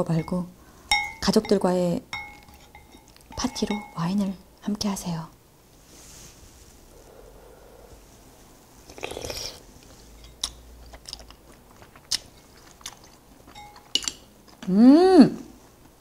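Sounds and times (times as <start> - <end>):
person humming mmm: 8.9 - 9.6, 14.6 - 15.6
close chewing: 10.4 - 14.7.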